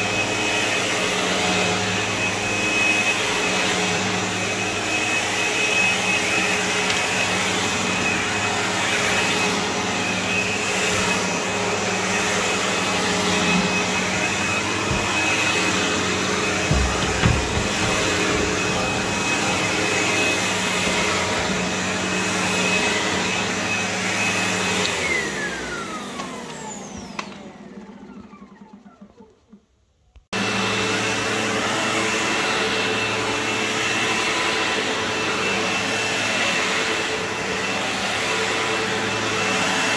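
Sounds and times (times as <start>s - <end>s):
vacuum cleaner running on carpet: 0.0s - 29.6s, 30.3s - 39.9s
vacuum motor winding down: 0.0s - 29.7s
low knocks: 16.6s - 19.0s.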